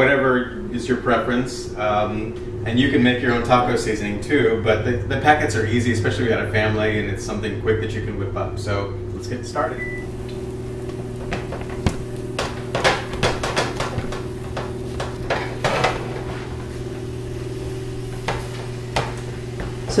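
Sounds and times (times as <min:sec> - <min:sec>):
low hum: 0:00.0 - 0:19.9
spatula scraping skillet: 0:11.2 - 0:20.0.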